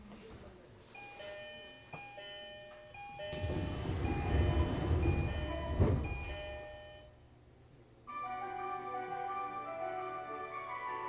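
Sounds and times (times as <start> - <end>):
chiming departure melody: 1.2 - 7.1, 8.1 - 11.0.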